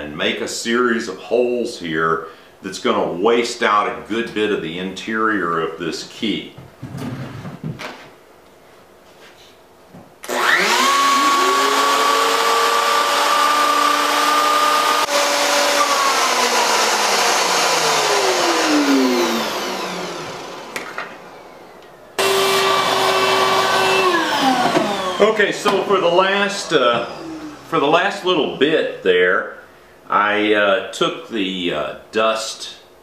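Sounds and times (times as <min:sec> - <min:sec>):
router whining: 0:10.2 - 0:28.2.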